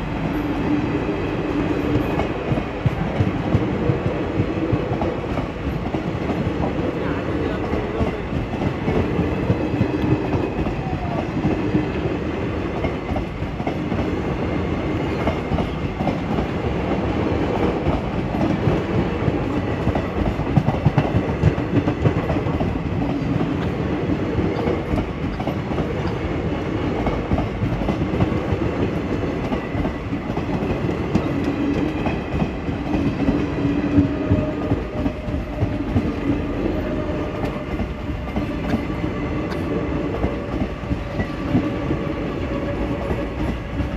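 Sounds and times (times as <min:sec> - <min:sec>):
train wheels rumbling on track: 0:00.0 - 0:43.9.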